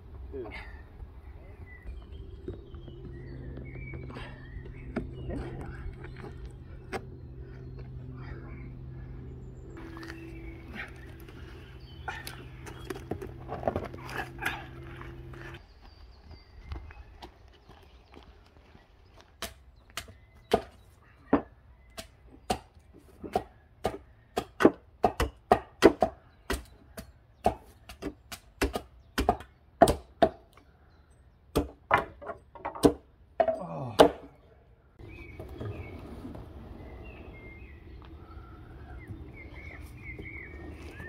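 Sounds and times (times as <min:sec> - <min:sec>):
outdoor background noise: 0:00.0 - 0:41.0
hatchet striking wooden stakes: 0:19.4 - 0:20.8, 0:21.4 - 0:30.6, 0:31.5 - 0:34.3.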